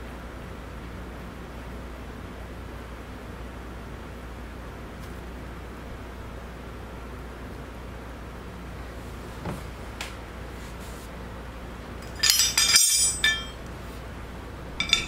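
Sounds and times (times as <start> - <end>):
metal tools clinking: 12.0 - 13.6, 14.8 - 15.0.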